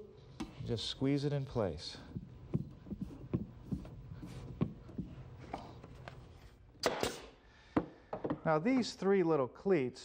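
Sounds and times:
steady low hum: 0.0s - 7.7s.

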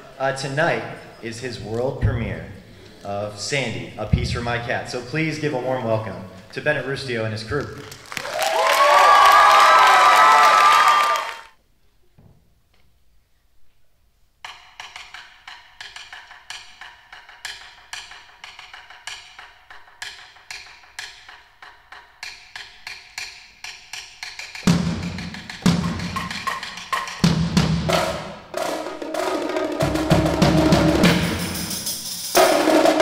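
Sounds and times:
deep drum strokes: 24.7s - 33.0s.

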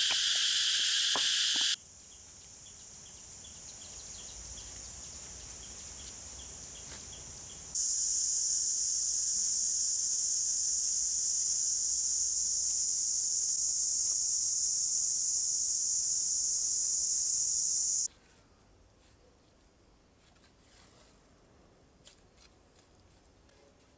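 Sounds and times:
high-pitched insect drone: 0.0s - 1.8s, 7.8s - 18.1s
insects humming and chirping: 0.0s - 18.1s.

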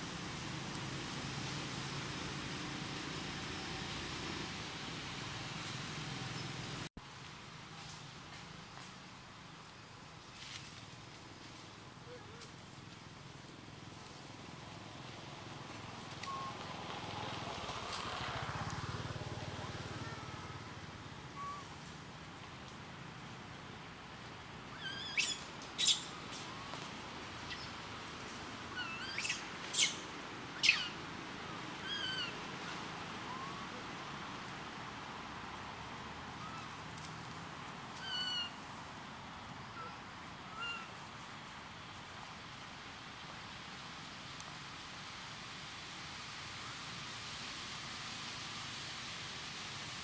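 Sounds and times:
steady outdoor hiss: 0.0s - 50.0s
high animal chirps and squeaks: 24.8s - 26.1s, 30.6s - 30.9s.

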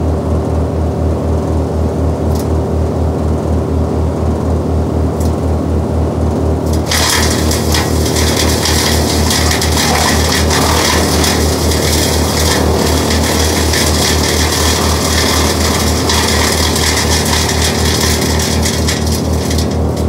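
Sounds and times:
wood chipper engine hum: 0.0s - 20.0s
wood shredding hiss: 6.7s - 20.0s.

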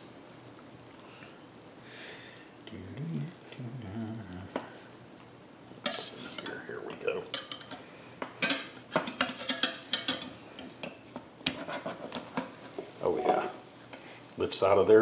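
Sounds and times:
spatula scraping metal skillet: 5.8s - 6.5s, 11.5s - 13.5s.

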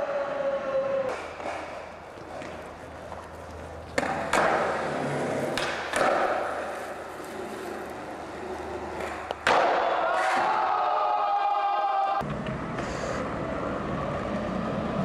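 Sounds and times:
skateboard wheels rolling on steel: 0.0s - 11.0s
skateboard clacks: 1.1s - 10.5s.

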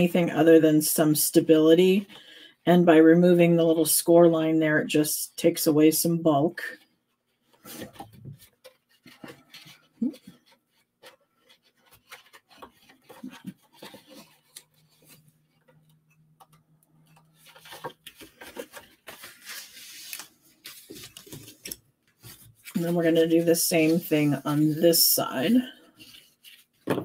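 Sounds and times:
card rustling and sliding: 6.8s - 27.0s.

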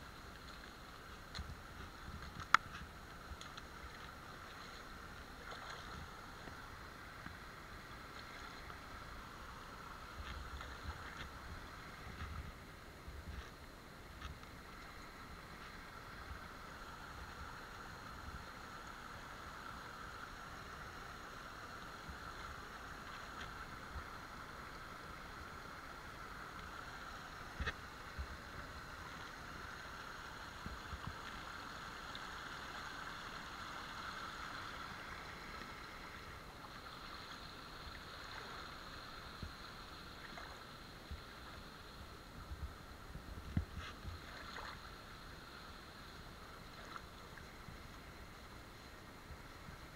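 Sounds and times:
water splashing: 0.3s - 7.3s, 43.6s - 45.0s
boots wading through water: 0.3s - 13.6s, 43.3s - 44.9s.

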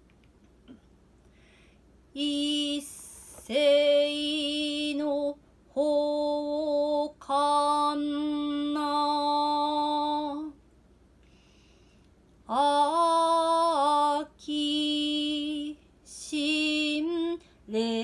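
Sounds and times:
woman chanting: 2.2s - 10.6s.

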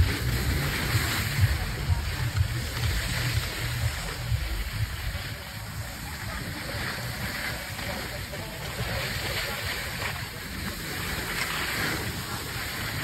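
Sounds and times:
skis hissing over slushy snow: 0.0s - 13.0s.

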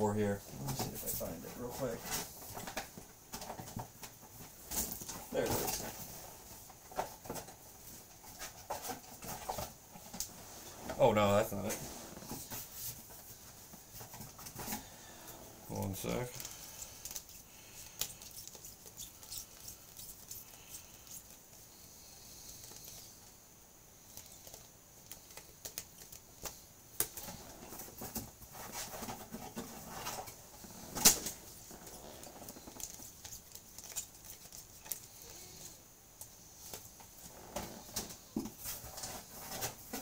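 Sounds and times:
cards flicking and rustling: 16.3s - 21.6s, 24.1s - 27.4s, 32.5s - 35.4s.

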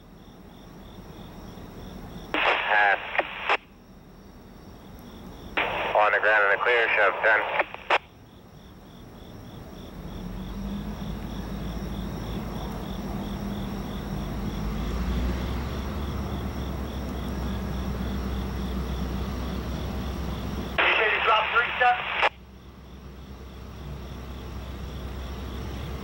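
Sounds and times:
crickets chirping: 0.0s - 26.0s
diesel locomotive rumble: 9.0s - 21.1s, 22.4s - 26.0s.

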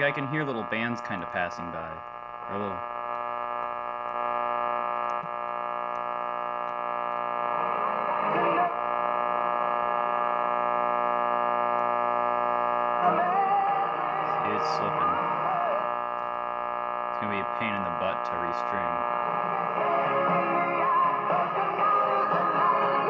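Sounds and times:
radio station voice: 0.0s - 5.7s, 13.3s - 16.0s, 16.9s - 19.5s
radio buzzing hum: 0.0s - 23.0s.

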